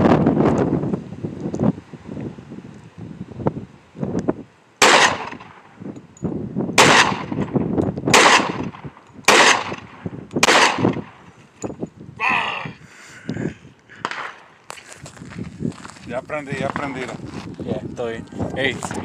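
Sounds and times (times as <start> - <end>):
gunshots: 4.8 - 5.6, 6.8 - 7.4, 8.1 - 11.1, 14.0 - 14.4.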